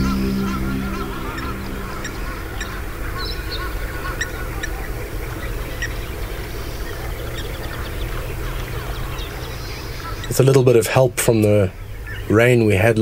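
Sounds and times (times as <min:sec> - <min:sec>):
low outdoor rumble: 0:00.0 - 0:04.0.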